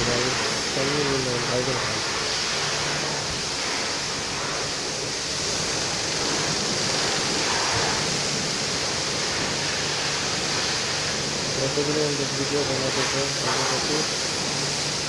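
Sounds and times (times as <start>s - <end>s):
high-pressure water spray hissing: 0.0s - 15.0s.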